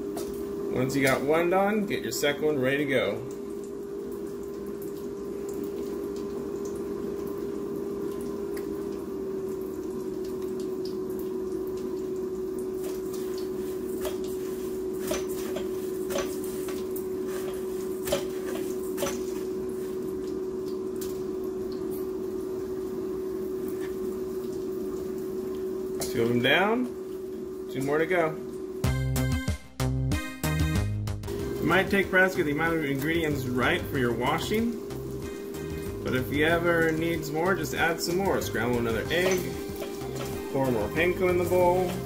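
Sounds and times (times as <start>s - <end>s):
fish frying in hot oil: 3.4s - 25.9s, 34.2s - 42.0s
oil popping: 32.1s - 42.0s.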